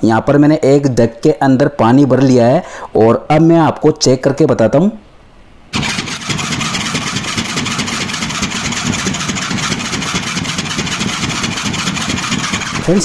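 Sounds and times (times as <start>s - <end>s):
motor-driven air pump rattling: 5.7s - 13.0s.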